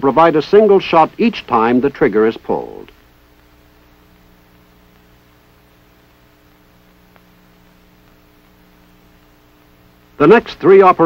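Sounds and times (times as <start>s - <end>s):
film soundtrack hum and hiss: 0.0s - 11.0s
faint click: 6.5s - 7.4s.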